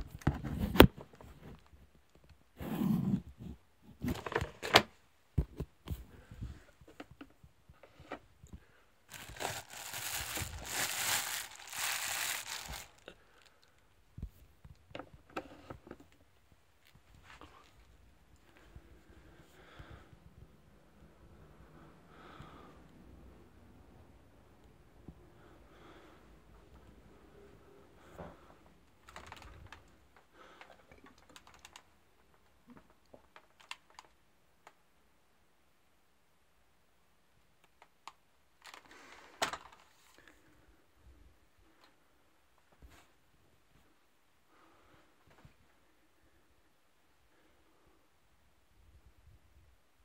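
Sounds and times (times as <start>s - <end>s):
plastic bag crinkling: 9.1s - 13.6s.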